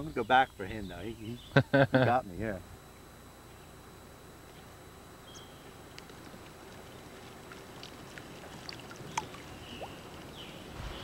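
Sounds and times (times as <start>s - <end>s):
faint water noise: 4.2s - 11.0s
small ticks: 4.4s - 10.4s
high bird chirps: 5.2s - 5.7s.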